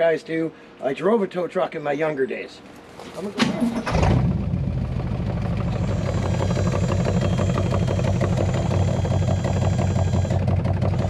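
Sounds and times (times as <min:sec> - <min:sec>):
truck engine idling: 0:03.2 - 0:11.0.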